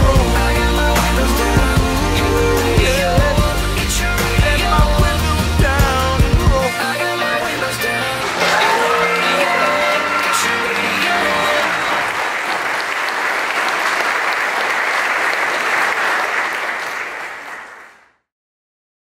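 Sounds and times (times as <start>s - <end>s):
music: 0.0s - 12.2s
crowd applauding: 6.8s - 18.1s.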